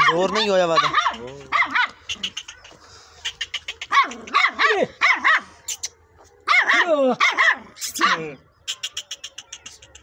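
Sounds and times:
puppy yapping: 3.8s - 5.4s.

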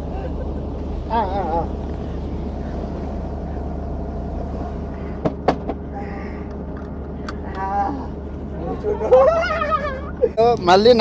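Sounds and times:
helicopter rotor hum: 0.0s - 11.0s.

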